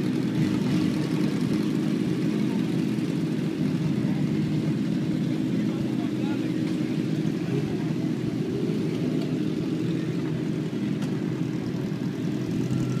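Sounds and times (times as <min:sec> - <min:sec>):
motorcycle engines idling: 0:00.0 - 0:13.0.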